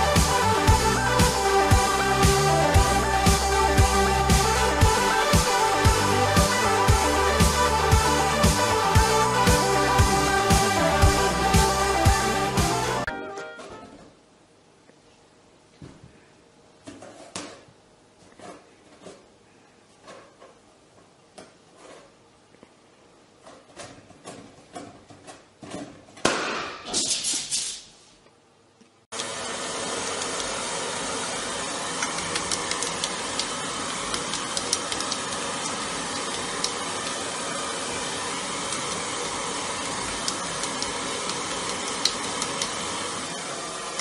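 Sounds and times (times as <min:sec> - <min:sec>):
hair dryer blowing: 0:00.0 - 0:13.1, 0:29.2 - 0:44.0.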